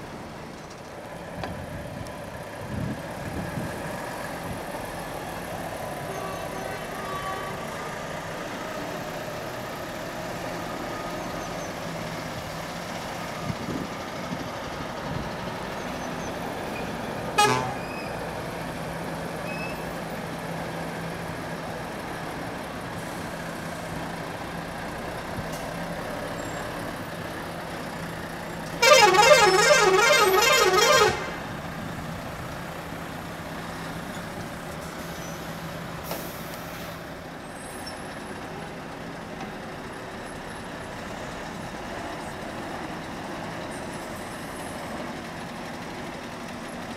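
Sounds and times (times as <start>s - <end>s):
engines idling hum: 0.0s - 46.9s
warbling truck horn: 17.4s - 17.9s, 28.8s - 31.5s.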